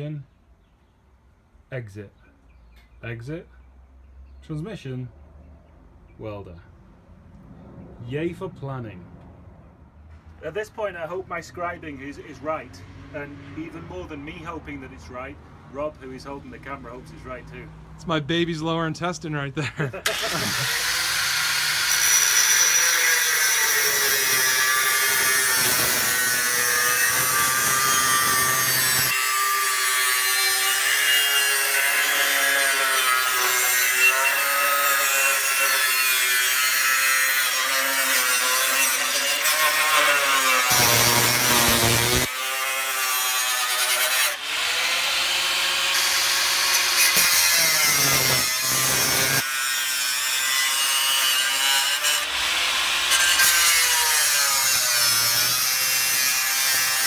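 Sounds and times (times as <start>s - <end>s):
angle grinder cutting steel: 20.1s - 57.0s.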